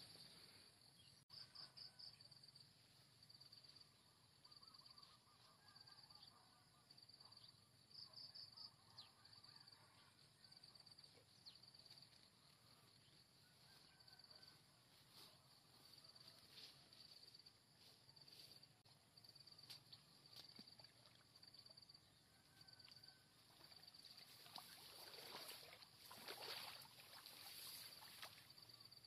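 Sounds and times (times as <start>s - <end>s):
insects trilling: 23.6s - 29.0s.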